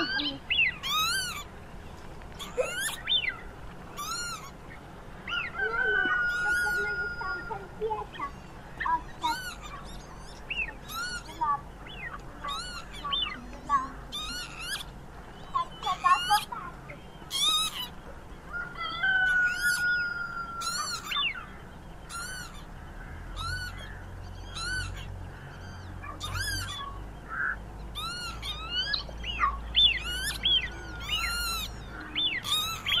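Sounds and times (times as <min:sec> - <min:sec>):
birds chirping: 0:00.0 - 0:33.0
bird gliding whistles: 0:23.4 - 0:33.0.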